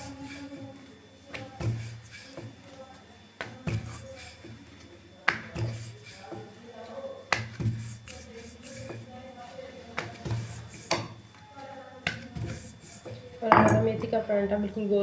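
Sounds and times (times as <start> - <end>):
rolling pin rumbling over dough: 0.0 - 2.8, 3.4 - 9.2, 10.0 - 11.2, 12.0 - 14.2.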